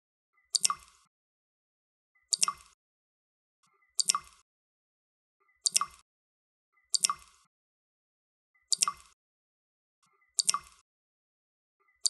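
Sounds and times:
water dripping: 0:00.6 - 0:01.1, 0:02.3 - 0:02.8, 0:04.0 - 0:04.4, 0:05.6 - 0:06.0, 0:06.9 - 0:07.4, 0:08.7 - 0:09.2, 0:10.4 - 0:10.8.

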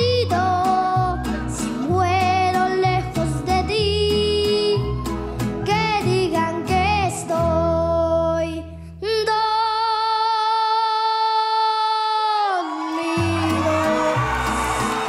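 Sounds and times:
boy singing: 0:00.0 - 0:04.9, 0:05.6 - 0:14.6
mariachi band playing: 0:04.7 - 0:07.3, 0:13.2 - 0:15.0.

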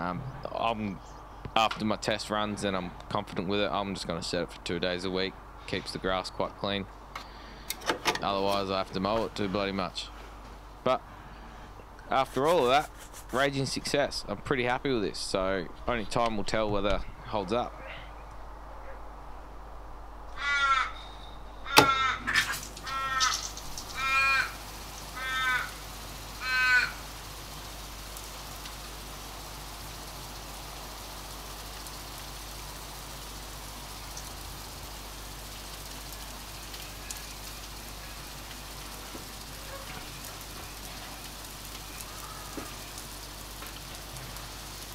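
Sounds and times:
crow cawing: 0:20.3 - 0:27.2, 0:40.6 - 0:43.2.

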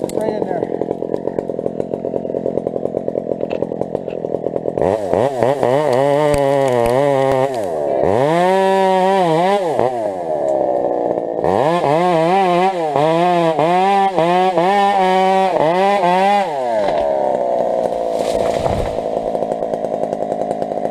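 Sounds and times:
chainsaw revving: 0:00.0 - 0:20.9.

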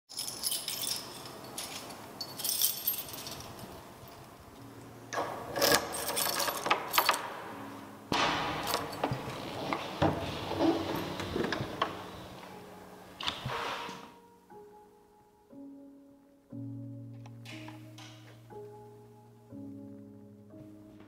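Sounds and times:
keys jangling: 0:00.1 - 0:04.4, 0:05.2 - 0:07.4, 0:08.5 - 0:12.0
key turning in a lock: 0:05.2 - 0:07.3.

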